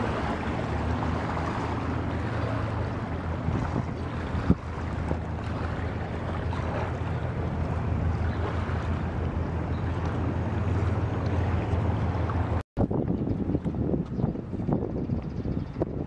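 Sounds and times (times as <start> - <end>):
boat engine droning: 0.0 - 12.6
water rushing: 0.0 - 12.6
wind noise on microphone: 3.0 - 6.8, 7.5 - 16.0.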